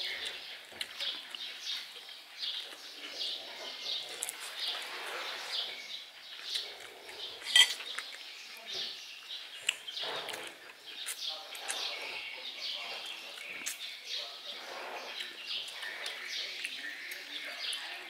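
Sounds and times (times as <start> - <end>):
bird chirping: 0.0 - 18.0
cutlery clinking on plates: 7.4 - 7.8.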